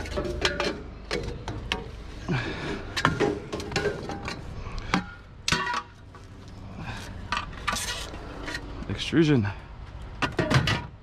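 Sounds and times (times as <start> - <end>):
metal tube scraping: 7.2 - 8.8.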